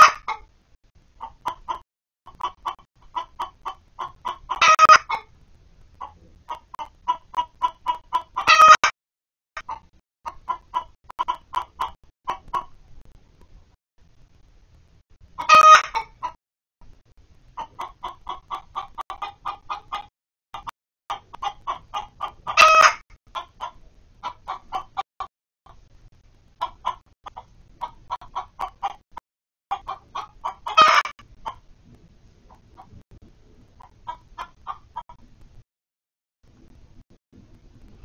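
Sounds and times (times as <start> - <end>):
hens clucking: 0.0 - 0.5, 1.2 - 5.4, 6.0 - 8.9, 9.6 - 12.8, 15.4 - 16.4, 17.5 - 25.1, 26.5 - 29.0, 29.7 - 31.7, 32.5 - 33.0, 33.6 - 35.2
hen squawking: 2.6 - 5.3, 15.4 - 16.4, 21.1 - 23.0, 29.7 - 31.6.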